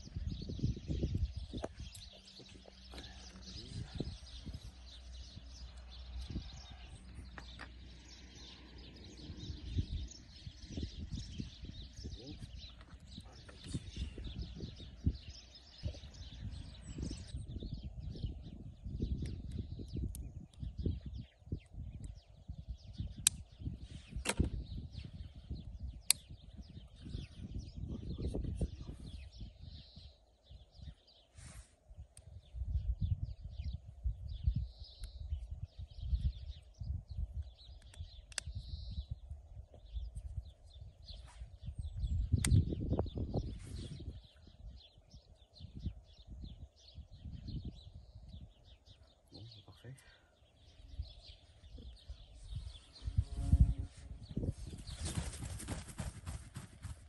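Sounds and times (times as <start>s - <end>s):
steady low rumble: 0.0s - 31.0s
songbirds chirping and singing: 0.0s - 57.0s.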